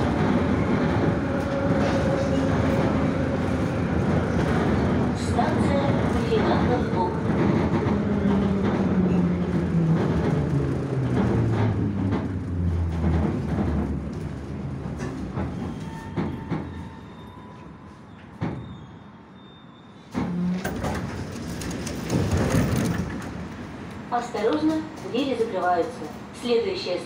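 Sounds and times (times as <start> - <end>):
train doors opening: 0.0 - 26.3.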